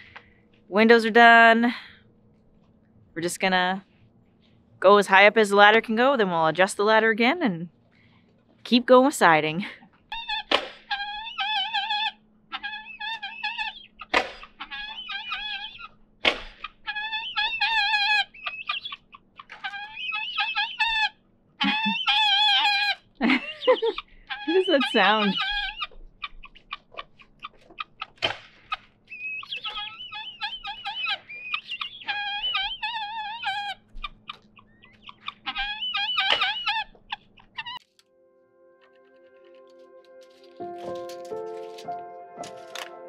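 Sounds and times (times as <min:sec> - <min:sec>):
guineafowl calling: 0:10.1 - 0:37.8.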